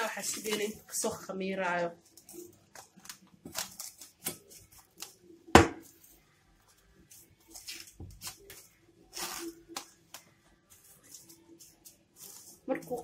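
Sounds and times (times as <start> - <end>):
cling film crinkling: 0.0 - 13.0.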